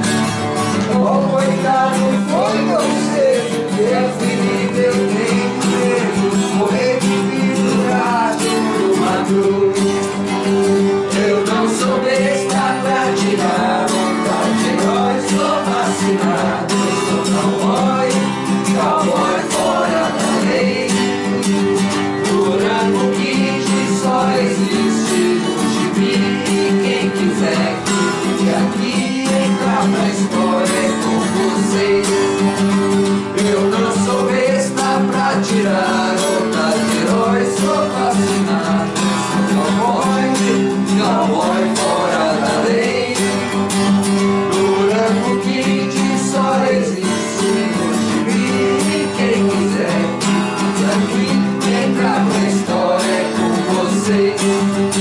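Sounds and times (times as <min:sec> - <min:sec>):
acoustic guitar strumming: 0:00.0 - 0:55.0
person singing: 0:00.8 - 0:43.7, 0:44.3 - 0:55.0.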